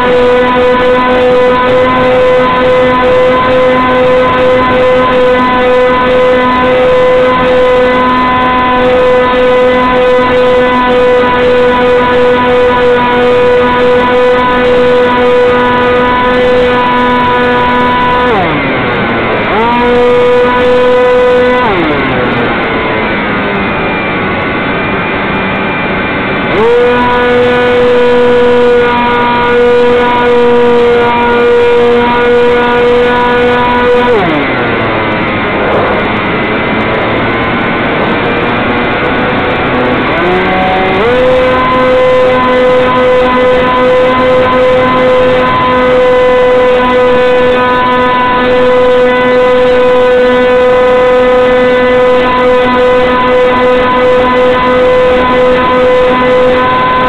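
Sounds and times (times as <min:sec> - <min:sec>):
electric motor whining: 0:00.0 - 0:57.0
rushing air: 0:34.2 - 0:40.1.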